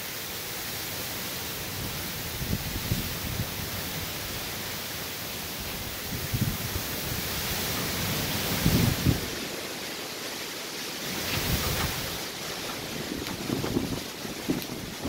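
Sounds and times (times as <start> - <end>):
driving rain: 0.0 - 15.0
hurricane wind: 0.0 - 15.0
wind gusts buffeting microphone: 1.7 - 4.4, 5.6 - 9.6, 11.0 - 15.0.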